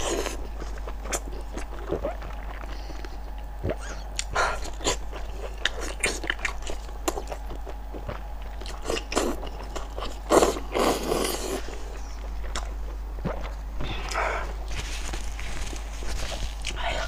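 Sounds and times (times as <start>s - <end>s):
wet biting and chewing: 12.2s - 17.0s.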